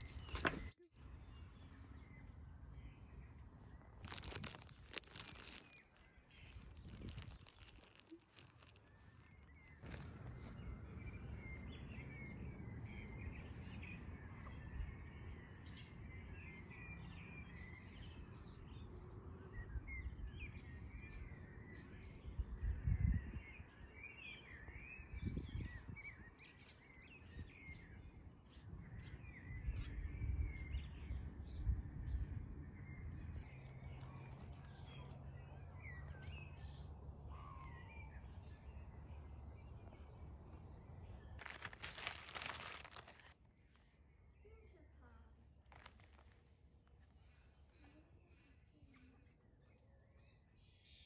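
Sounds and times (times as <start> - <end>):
birds chirping: 0.0 - 51.0
low outdoor rumble: 9.8 - 16.2.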